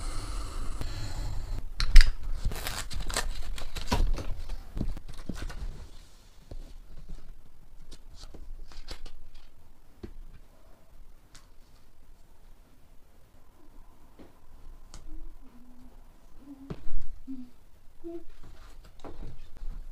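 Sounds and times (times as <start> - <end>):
paper rustling and crinkling: 2.3 - 9.5.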